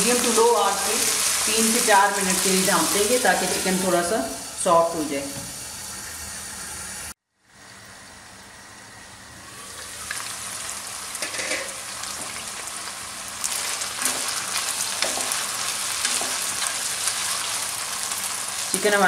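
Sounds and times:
chicken sizzling in oil: 0.0s - 8.8s, 9.4s - 19.0s
spatula scraping a pan: 11.2s - 11.8s.

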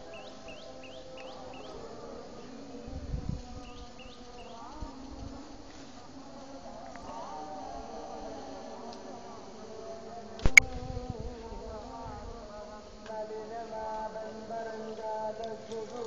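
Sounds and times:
steady buzzing drone: 0.0s - 16.0s.

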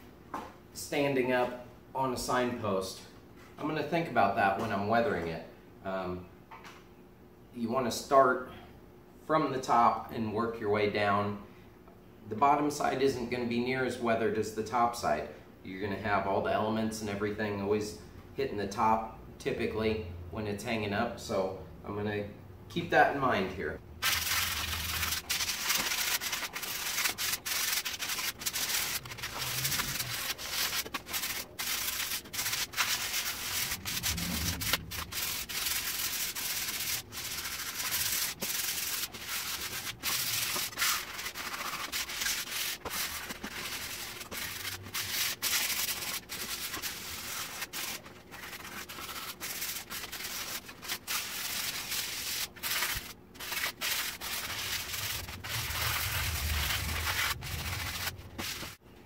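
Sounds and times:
sandpaper rubbing on wood: 24.0s - 58.8s.

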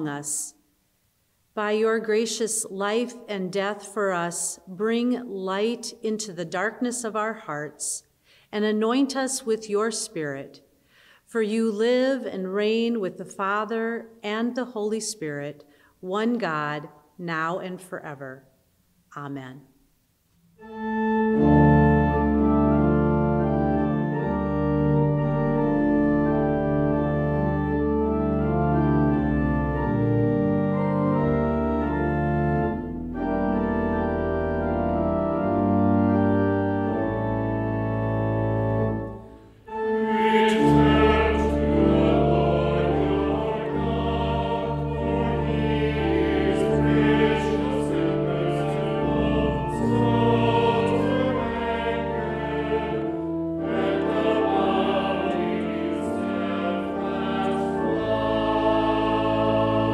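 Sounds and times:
church organ chords: 20.6s - 59.9s.

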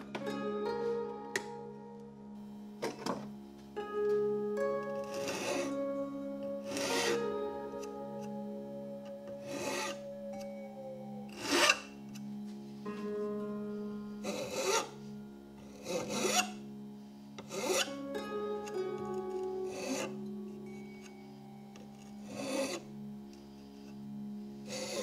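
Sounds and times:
background music: 0.0s - 25.0s
file rasping on wood: 5.0s - 5.8s, 6.6s - 7.3s, 9.4s - 10.0s, 11.3s - 11.9s, 14.2s - 15.0s, 15.6s - 16.6s, 17.4s - 18.0s, 19.6s - 20.2s, 22.2s - 22.9s, 24.6s - 25.0s.

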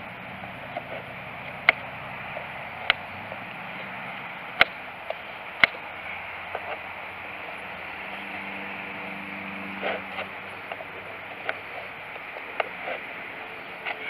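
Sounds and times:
background hiss: 0.0s - 14.0s
knife shaving wood: 3.8s - 14.0s.

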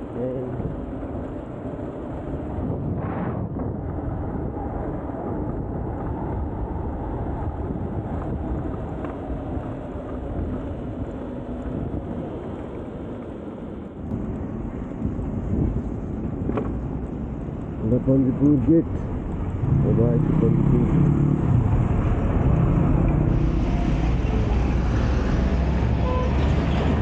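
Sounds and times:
motorcycle engine and road rumble: 0.0s - 27.0s
wind buffeting microphone: 0.0s - 27.0s.

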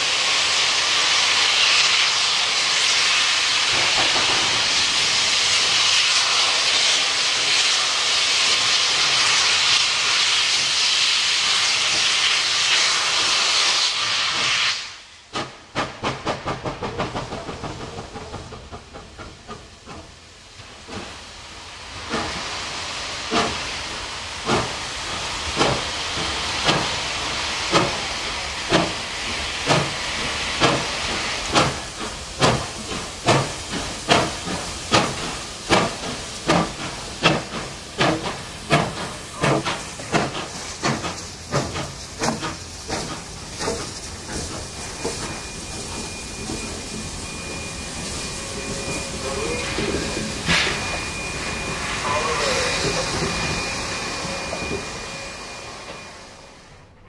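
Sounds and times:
steam hiss: 0.0s - 57.0s
steam locomotive exhaust beats: 0.0s - 57.0s
thin high tone: 44.8s - 56.9s.

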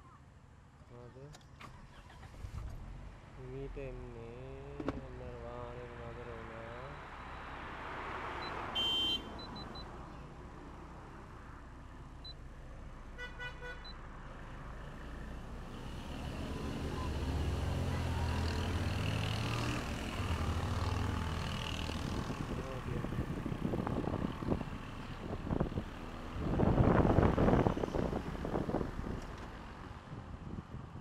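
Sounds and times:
vehicle horn beeping: 8.7s - 9.6s, 13.2s - 13.9s
vehicle engine approaching: 14.1s - 30.8s.

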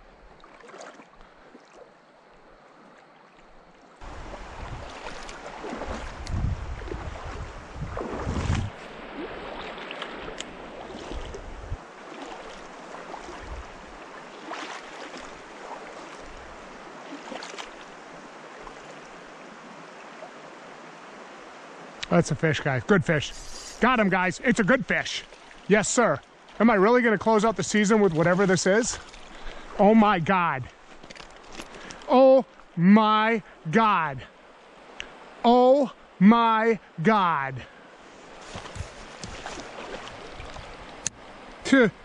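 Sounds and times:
stream water rushing: 0.0s - 42.0s
wind buffeting microphone: 4.0s - 9.6s, 10.2s - 11.9s, 13.3s - 14.0s
splashy crackles: 4.3s - 11.4s, 14.3s - 16.4s, 17.1s - 17.9s, 27.6s - 29.8s, 38.4s - 40.7s.

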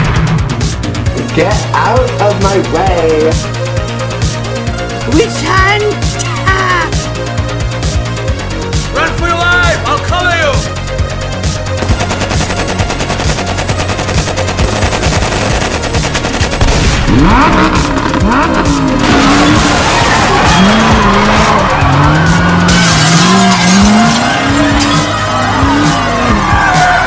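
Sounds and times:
automatic rifle fire: 11.8s - 17.4s
car engines revving: 14.8s - 27.0s
goods smashing crash: 19.0s - 25.8s.

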